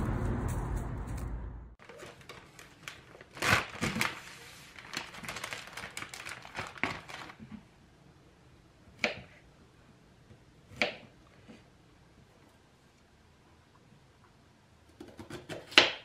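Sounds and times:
steady rumbling noise: 0.0s - 1.8s
crinkling and rustling: 1.1s - 7.7s.

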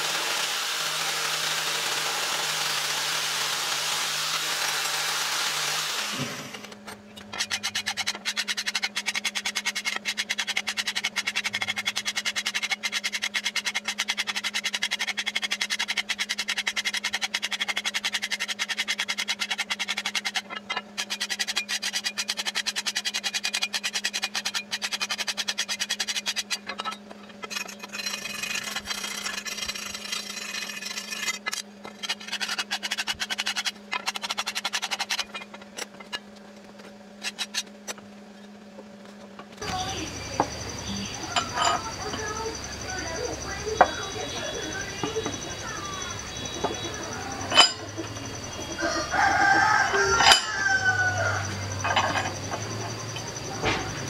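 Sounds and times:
wire wheel grinder brushing steel: 0.0s - 36.2s, 39.6s - 54.0s
steady low hum: 19.6s - 54.0s.

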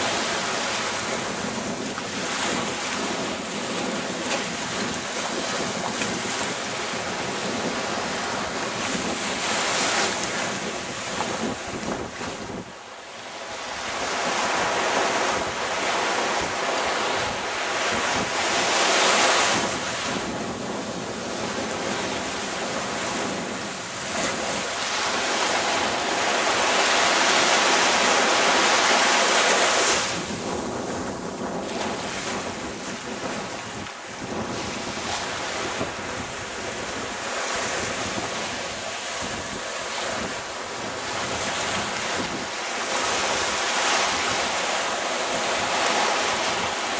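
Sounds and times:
surf washing onto beach: 0.0s - 46.9s
wind buffeting microphone: 0.0s - 46.9s.

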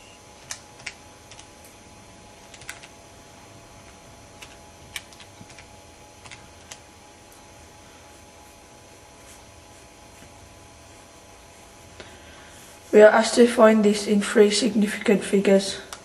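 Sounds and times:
calculator keys clicking: 0.4s - 1.5s, 2.4s - 2.9s, 4.4s - 6.8s.

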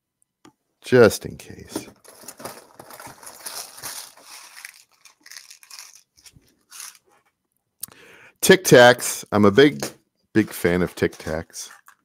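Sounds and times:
rustling plastic packages: 1.8s - 7.2s, 10.9s - 12.0s.

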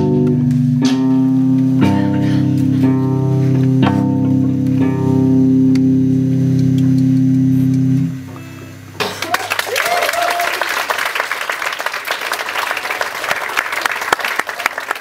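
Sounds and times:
electric guitar chords ringing: 0.0s - 9.2s.

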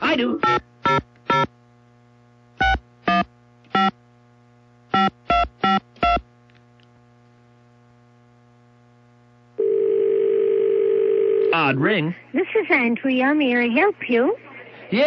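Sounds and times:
phone line hum: 0.0s - 6.4s, 8.1s - 12.0s.

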